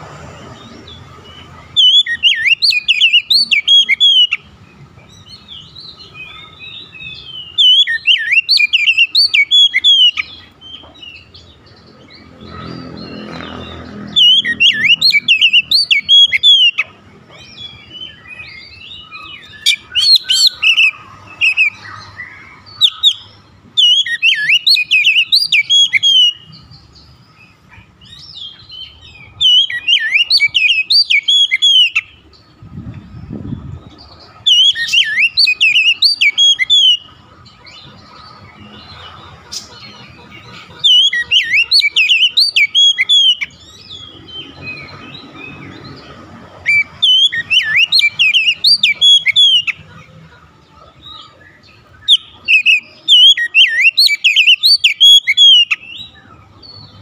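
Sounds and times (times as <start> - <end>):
bird singing whistled phrases: 1.8 - 4.4, 6.3 - 10.8, 14.1 - 16.9, 17.5 - 26.6, 28.1 - 32.2, 34.5 - 37.1, 40.8 - 44.1, 46.7 - 49.8, 52.0 - 56.2.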